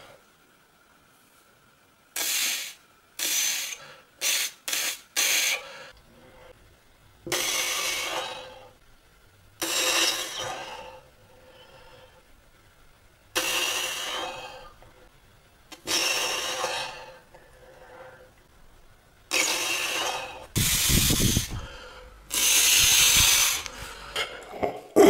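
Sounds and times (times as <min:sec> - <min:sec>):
man breathing out hard: 0:20.0 - 0:22.2
wind buffeting microphone: 0:20.6 - 0:21.7.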